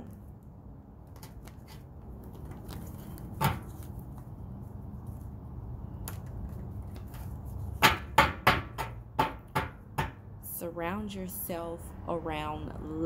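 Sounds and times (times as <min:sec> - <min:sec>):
cards being shuffled: 0:01.1 - 0:05.4, 0:06.0 - 0:07.8.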